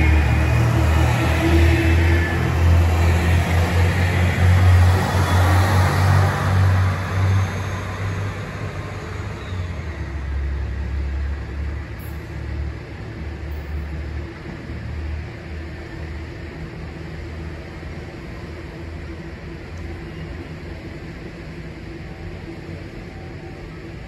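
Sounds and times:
diesel train engine drone: 0:00.0 - 0:24.0.

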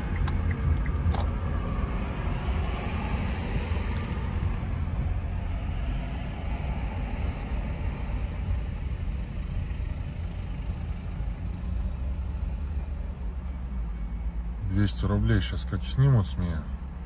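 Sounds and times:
road and tyre rumble: 0:00.0 - 0:17.0.

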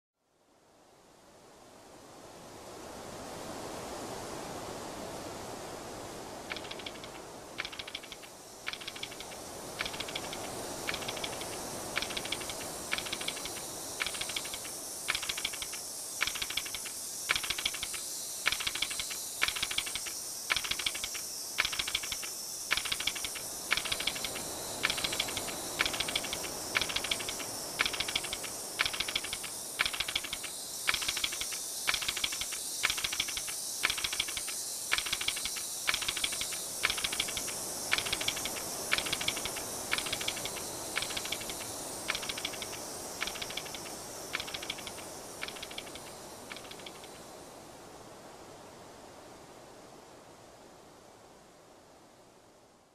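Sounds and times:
steady high hiss: 0:00.4 - 0:52.9
toy fish tail clicking: 0:06.5 - 0:47.2.

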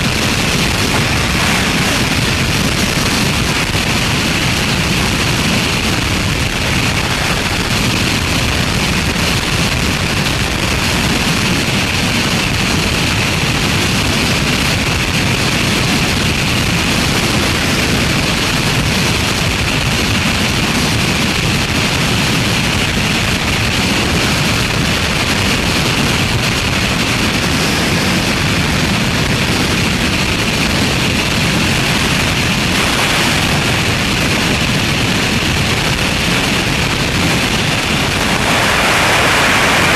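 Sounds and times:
freefall wind on microphone: 0:00.0 - 0:39.9.

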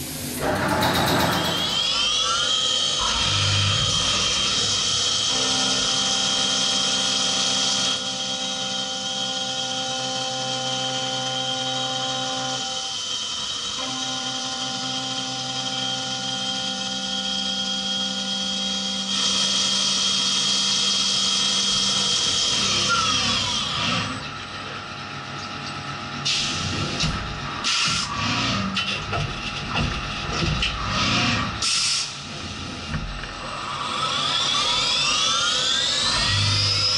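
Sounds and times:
mill cutting whine: 0:00.0 - 0:36.9
machine knocks: 0:00.4 - 0:01.9.

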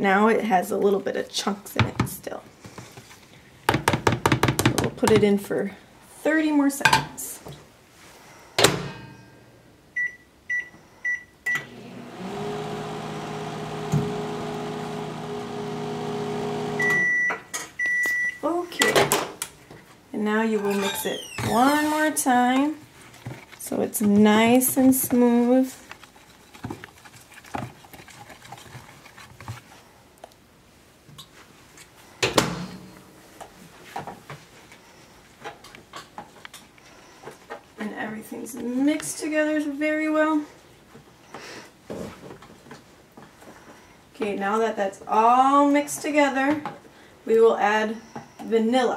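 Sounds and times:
microwave oven humming: 0:11.6 - 0:17.2
microwave keypad beeping: 0:16.8 - 0:18.4.

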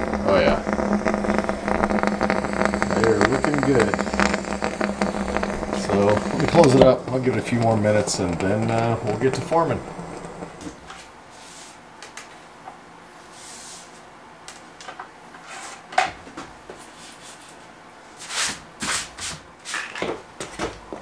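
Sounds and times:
brushing rustling sounds: 0:10.9 - 0:11.8, 0:13.2 - 0:14.0, 0:16.8 - 0:19.1.

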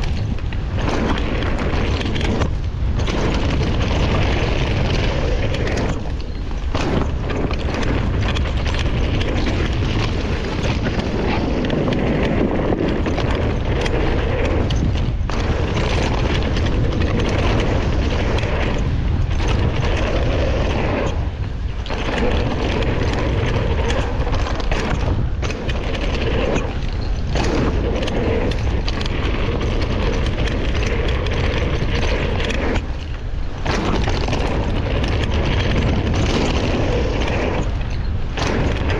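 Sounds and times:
tyres rolling over dirt trail: 0:00.0 - 0:38.9
wind buffeting microphone: 0:00.0 - 0:38.9.

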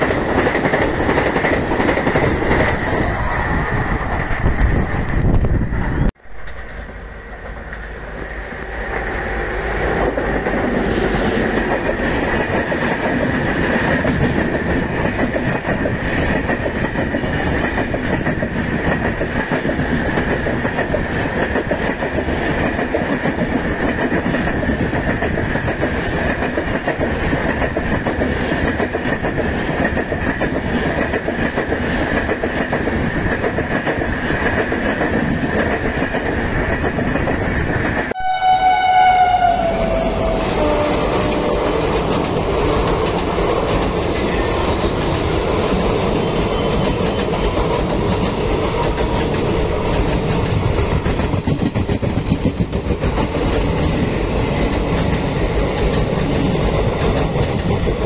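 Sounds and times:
train wheels clattering on rails: 0:00.0 - 0:03.3, 0:08.6 - 0:38.2, 0:40.6 - 0:58.0.

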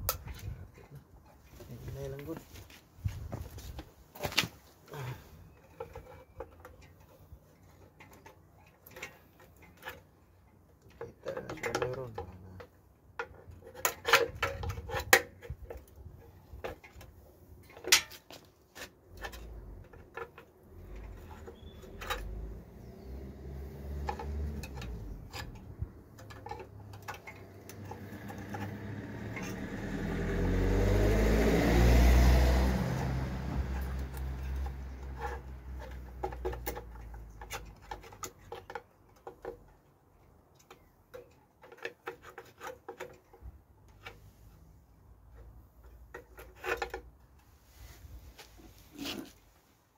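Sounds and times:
tools clanking on engine: 0:10.8 - 0:15.9, 0:16.5 - 0:31.4, 0:32.7 - 0:39.8
vehicle passing: 0:20.7 - 0:36.7.

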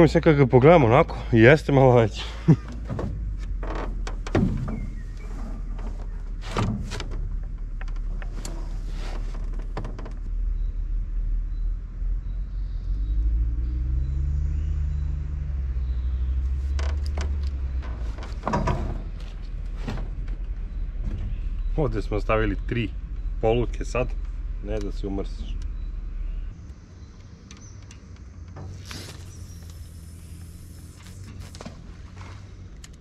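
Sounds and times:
low engine drone: 0:02.0 - 0:33.0
low rumble: 0:09.8 - 0:27.5.

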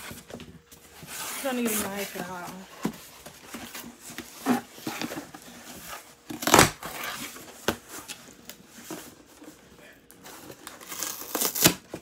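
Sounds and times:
cardboard rustling: 0:00.0 - 0:12.0
cardboard ripping: 0:06.3 - 0:07.4, 0:10.6 - 0:12.0.

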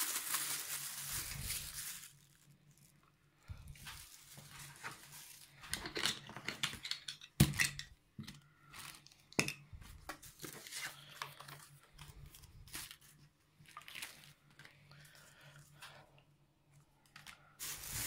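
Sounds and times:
plastic bags crinkling: 0:00.0 - 0:07.1, 0:10.2 - 0:14.7, 0:17.2 - 0:18.0.

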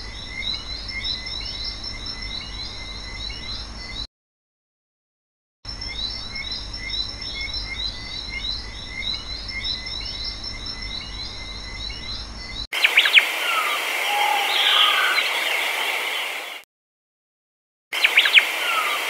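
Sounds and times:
bird calls: 0:05.8 - 0:16.6, 0:18.0 - 0:19.0.

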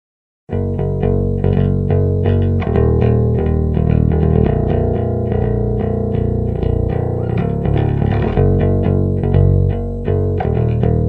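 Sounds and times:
electric bass playing: 0:00.5 - 0:11.0.

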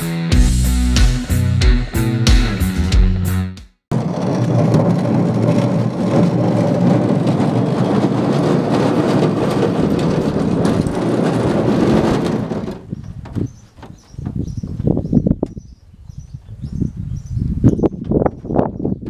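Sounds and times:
wind buffeting microphone: 0:04.1 - 0:19.0.

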